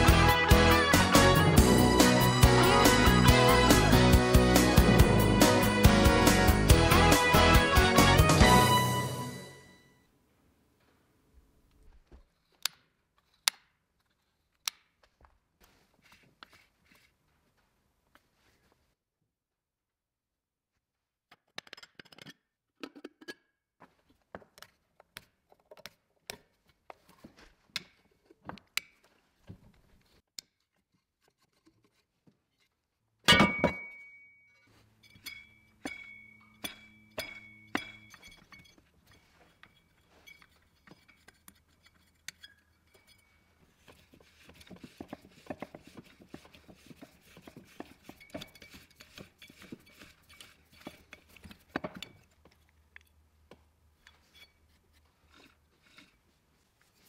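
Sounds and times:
metal tools clinking and tapping: 0:33.3 - 0:43.6, 0:47.8 - 0:53.2, 0:54.0 - 0:54.7
loud ringing metal clang: 0:35.3 - 0:38.4.

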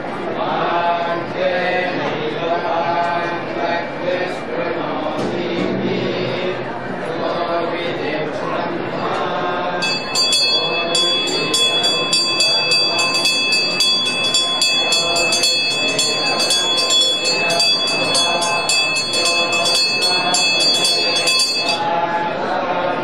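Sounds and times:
voices: 0:00.0 - 0:23.0
temple bell ringing rapidly: 0:09.8 - 0:22.0.

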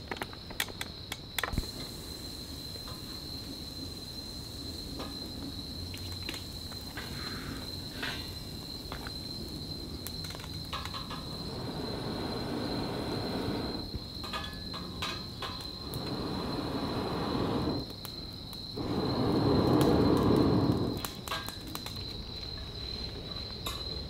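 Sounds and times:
crickets trilling: 0:00.0 - 0:24.0
sharp clicks and crackles: 0:10.0 - 0:11.3, 0:19.7 - 0:22.6.

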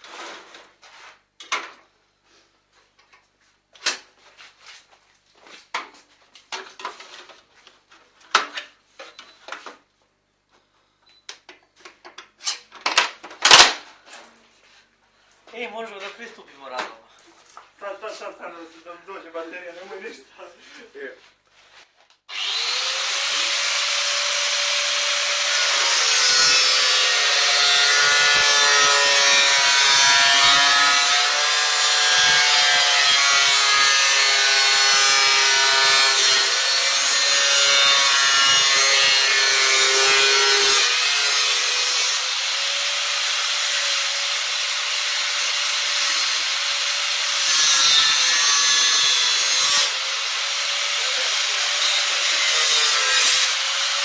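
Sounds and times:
angle grinder cutting metal: 0:22.3 - 0:54.0.

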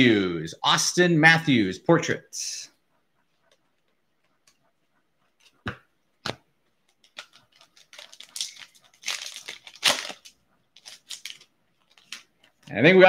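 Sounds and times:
foil wrapper crinkling and tearing: 0:07.0 - 0:12.4.

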